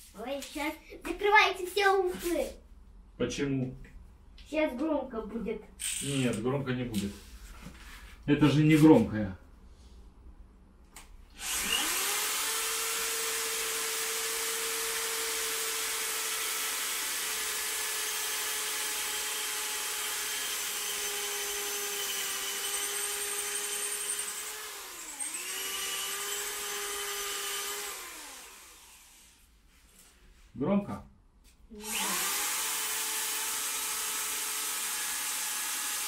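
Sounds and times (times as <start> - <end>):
cordless drill whining: 5.8 - 6.3, 11.4 - 29.4, 31.8 - 36.0.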